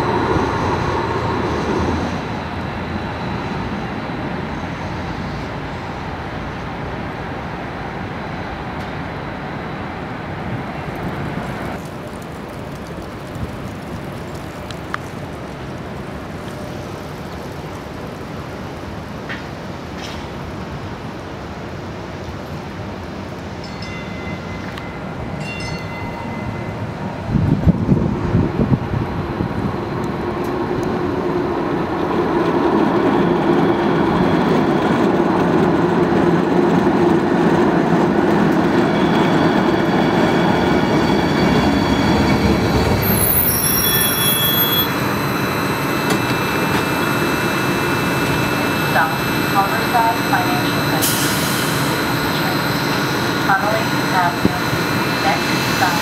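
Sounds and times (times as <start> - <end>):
light rail vehicle approaching: 0.0 - 56.0
motor and wheel whining: 27.7 - 56.0.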